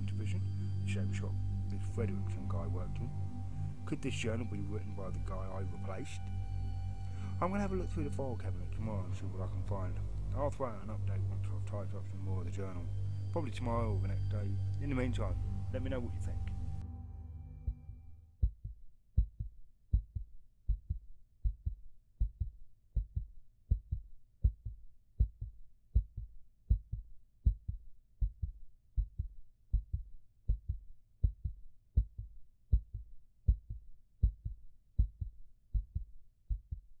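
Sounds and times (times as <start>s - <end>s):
heartbeat thumps: 14.1s - 37.0s.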